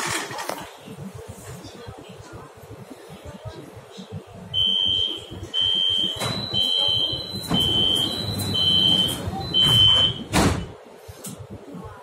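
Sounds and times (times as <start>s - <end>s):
higher warning tone: 4.6s - 10.3s
train door warning beeps: 4.6s - 10.8s
train doors knocking: 6.0s - 10.8s.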